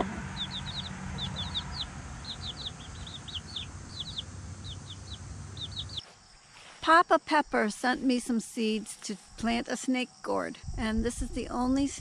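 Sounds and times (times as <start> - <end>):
chicks peeping: 0.0 - 6.0
low steady rumble: 0.0 - 6.0.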